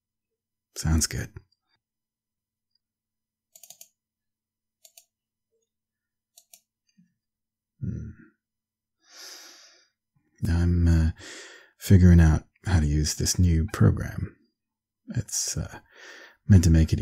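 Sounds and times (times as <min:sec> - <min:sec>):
mouse and keyboard clicks: 0:03.5 - 0:04.0, 0:04.8 - 0:05.1, 0:06.3 - 0:06.7.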